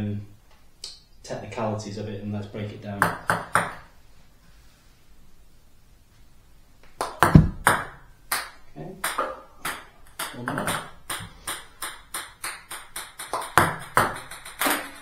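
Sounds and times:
ball bouncing on table: 0:03.0 - 0:03.8, 0:07.0 - 0:15.0
bat hitting ping pong ball: 0:07.0 - 0:15.0.

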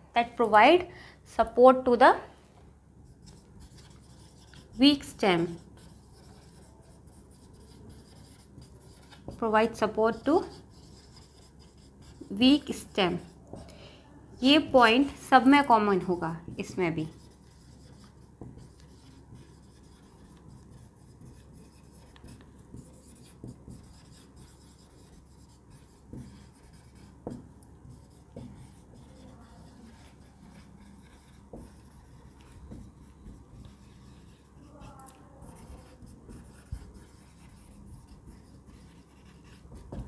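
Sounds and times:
marker squeaking on whiteboard: 0:03.2 - 0:13.7, 0:16.6 - 0:40.0
marker tapping on whiteboard: 0:07.4 - 0:09.5, 0:17.5 - 0:34.4, 0:35.7 - 0:40.0.

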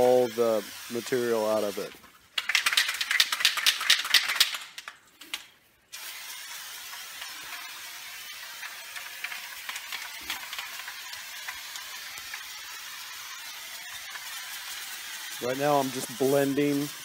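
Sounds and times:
aerosol can spraying: 0:00.0 - 0:17.0.

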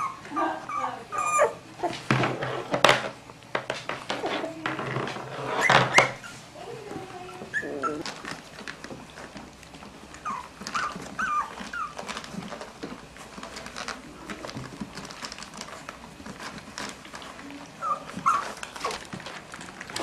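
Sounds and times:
puppies whimpering squeaks: 0:00.0 - 0:02.0, 0:05.4 - 0:08.1, 0:10.1 - 0:12.6, 0:17.6 - 0:19.1
puppies suckling clicks and rustles: 0:00.0 - 0:20.0.

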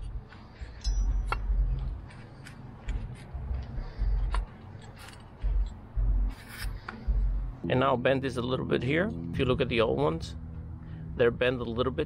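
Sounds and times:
dull low thumps: 0:00.0 - 0:07.7.

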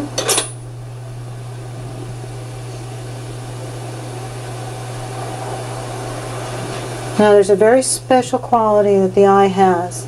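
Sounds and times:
low electrical hum: 0:00.0 - 0:10.0
background hiss: 0:03.5 - 0:07.5.

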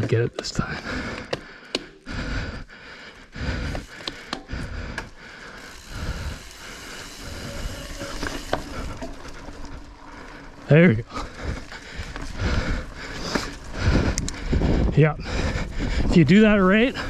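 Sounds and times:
bike clicks and knocks: 0:00.0 - 0:02.0, 0:03.6 - 0:10.0, 0:13.0 - 0:14.4
rider breathing hard: 0:00.6 - 0:17.0.

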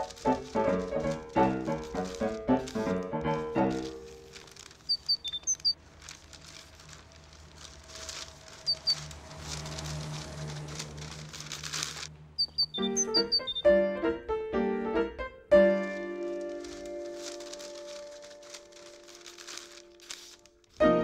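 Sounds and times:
piano tune: 0:00.0 - 0:05.8, 0:09.8 - 0:21.0
rustling and scuffling: 0:00.0 - 0:13.6, 0:15.8 - 0:21.0
short high chirps: 0:04.9 - 0:05.7, 0:12.4 - 0:13.6.

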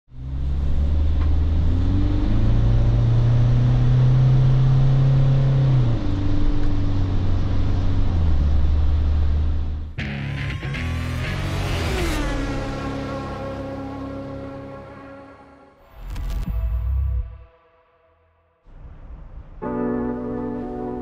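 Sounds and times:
van engine hum: 0:00.1 - 0:15.6
road noise: 0:00.1 - 0:17.6, 0:18.6 - 0:21.0
music: 0:10.0 - 0:18.7, 0:19.6 - 0:21.0.

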